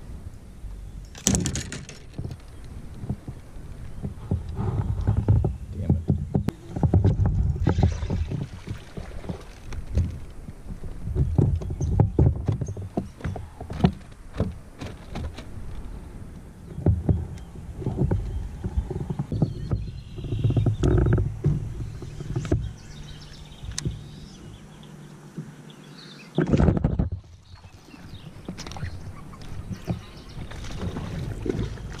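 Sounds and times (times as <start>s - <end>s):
wind rumble on microphone: 0.0s - 24.8s, 26.3s - 32.0s
knocks and rustling handling noise: 1.1s - 15.9s.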